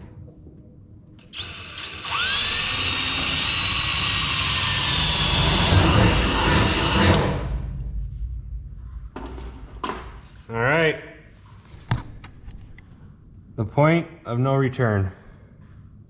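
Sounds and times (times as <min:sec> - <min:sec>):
cordless drill whining: 0:01.3 - 0:07.4.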